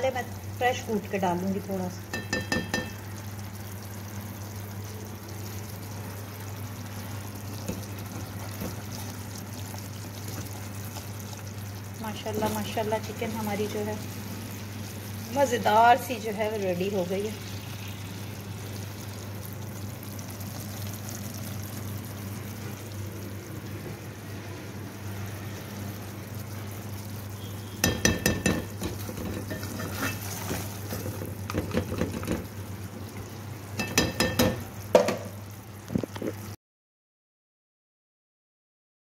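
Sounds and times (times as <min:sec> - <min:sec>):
metal utensil scraping a pot: 0:28.8 - 0:32.3.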